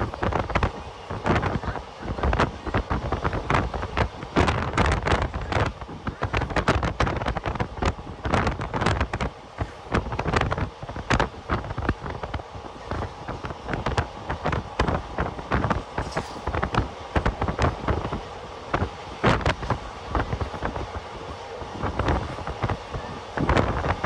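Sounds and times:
train running at speed: 0.0 - 24.0
wind buffeting microphone: 0.0 - 24.0.

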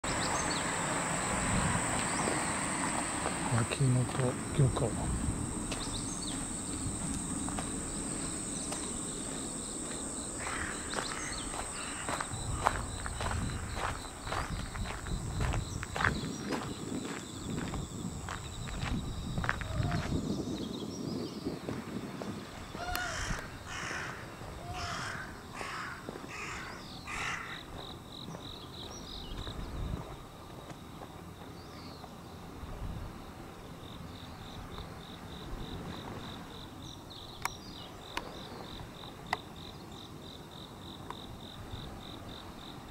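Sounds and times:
insects chirping: 0.0 - 42.9
footsteps on gravel: 2.0 - 4.9, 5.5 - 20.2
crow cawing: 10.4 - 12.7, 22.8 - 27.6.

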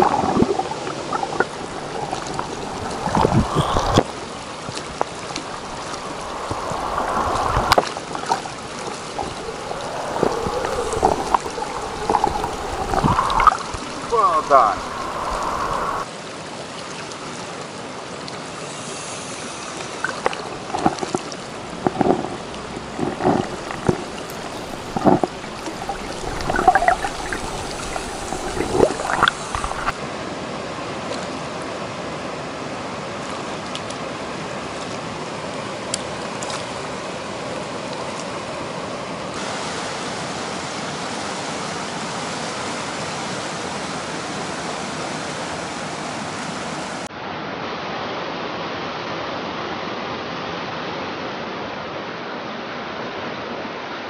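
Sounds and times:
river water rushing: 0.0 - 53.1.

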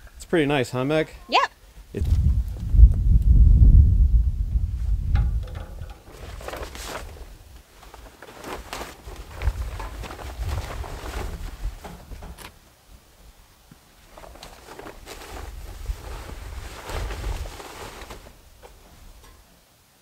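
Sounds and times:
wind buffeting microphone: 1.9 - 7.5, 9.3 - 12.3
plastic tarp crinkling: 5.8 - 12.6, 14.0 - 19.5.

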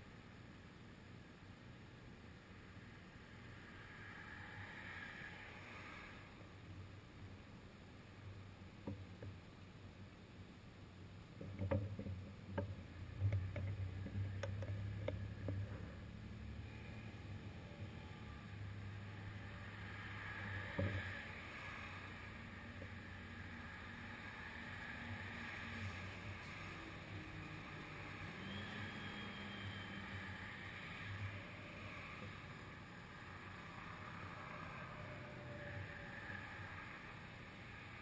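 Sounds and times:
traffic hiss: 2.4 - 8.5, 14.2 - 38.0
light clicks and knocks: 11.4 - 15.8.

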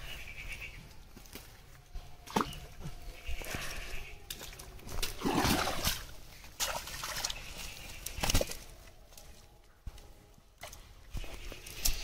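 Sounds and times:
fish thrashing in wet net: 4.4 - 7.4.

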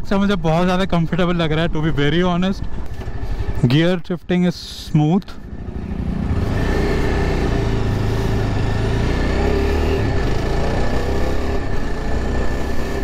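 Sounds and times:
road and wind noise: 0.0 - 13.0
motorcycle engine running: 5.4 - 13.0.

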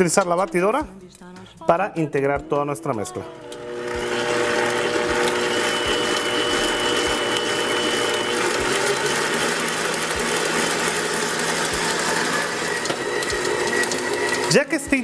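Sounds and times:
stand mixer beating batter: 3.3 - 15.0.

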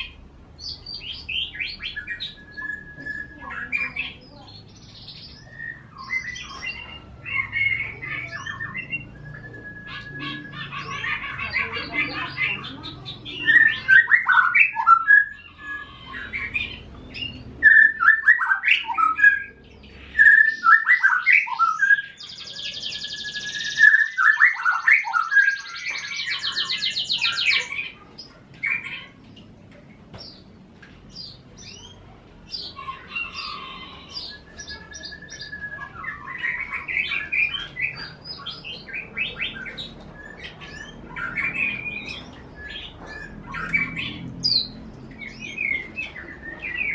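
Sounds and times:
whistled bird notes: 0.0 - 28.0, 31.1 - 46.9
high rattling bird trill: 0.0 - 29.4
songbirds chirping: 0.0 - 46.9.

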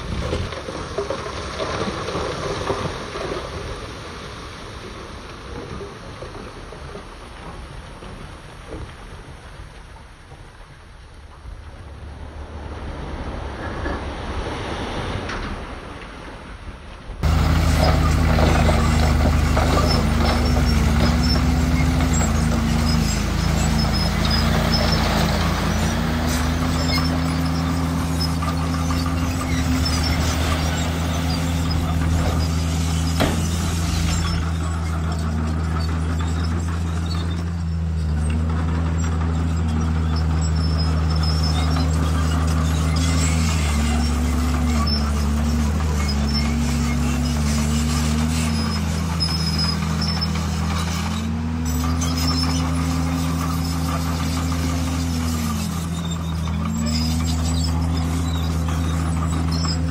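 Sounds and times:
diesel engine of heavy machine: 17.2 - 59.9.

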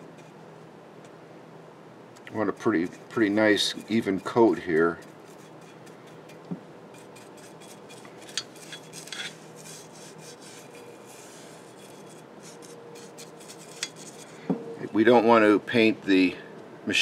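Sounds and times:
scratchy brushing on metal: 2.4 - 15.0
brush clicking against metal: 7.2 - 9.4, 13.0 - 14.2.

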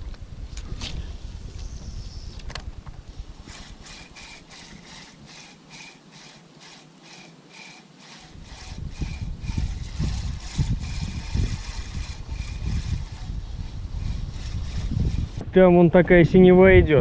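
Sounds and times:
wind rumble on microphone: 0.0 - 4.3, 8.4 - 17.0
spinning reel whirring tick: 3.4 - 15.4.

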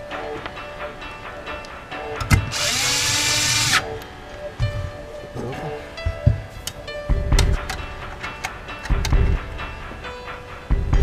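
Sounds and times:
cordless drill whining: 2.4 - 4.0.

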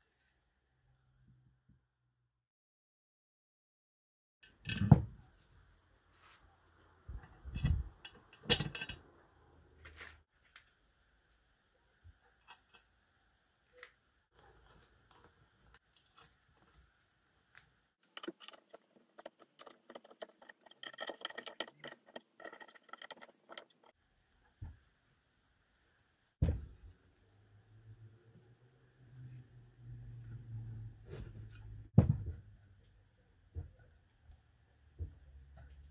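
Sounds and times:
thump: 26.4 - 26.8, 32.0 - 32.4.

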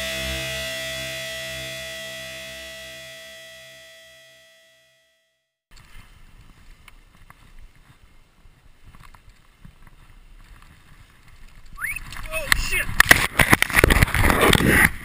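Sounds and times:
wind rumble on microphone: 5.7 - 15.0
skis sliding over snow: 5.8 - 15.0.

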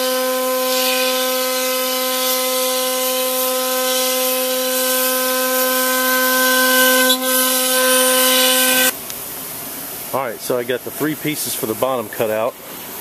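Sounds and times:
router bit cutting wood: 0.0 - 8.9.

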